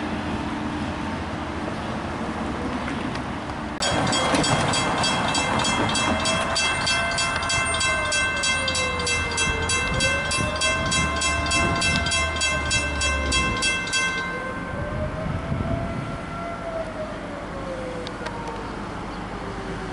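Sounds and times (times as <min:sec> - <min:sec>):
crossing warning bell ringing: 0:03.8 - 0:15.8.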